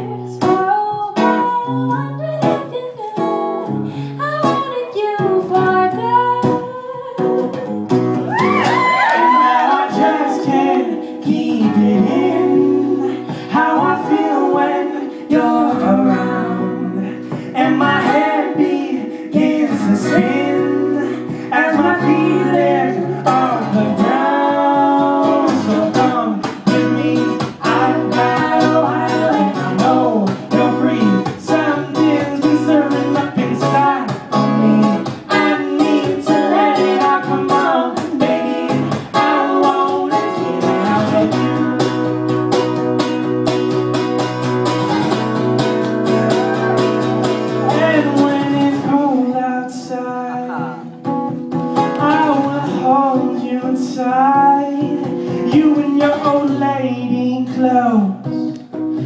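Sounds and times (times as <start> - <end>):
strummed acoustic guitar: 0.0 - 59.0
person singing: 8.3 - 42.1, 46.3 - 51.0, 51.9 - 58.7.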